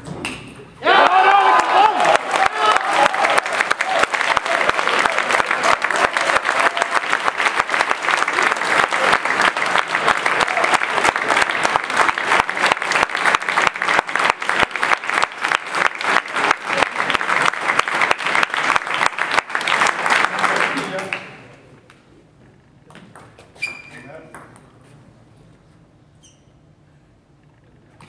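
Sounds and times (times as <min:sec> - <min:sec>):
audience applauding: 0:00.9 - 0:21.4.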